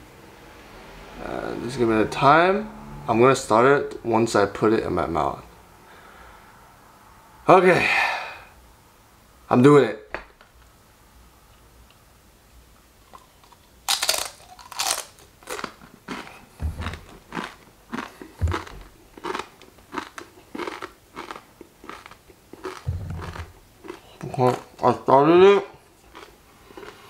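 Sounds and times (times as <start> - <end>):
crunchy chewing: 13.0 - 25.0, 25.6 - 27.0
chip crunching when bitten: 13.1 - 25.1, 26.1 - 27.0.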